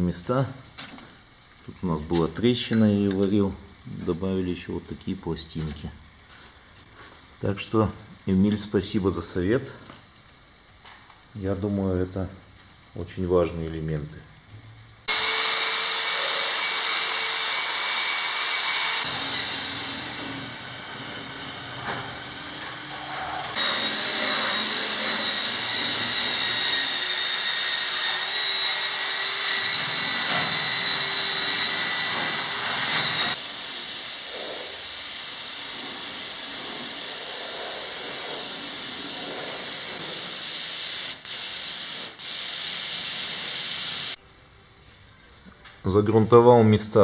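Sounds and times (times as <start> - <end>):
spray gun hissing: 33.3 - 44.2.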